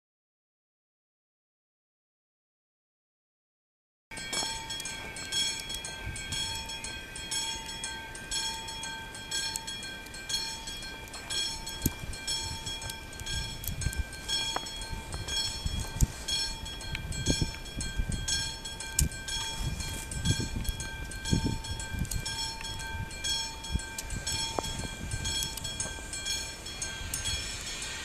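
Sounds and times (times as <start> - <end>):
electric locomotive whine: 4.1 - 28.0
scattered clicks: 4.4 - 7.9, 9.3 - 28.0
low rumble: 11.4 - 28.0.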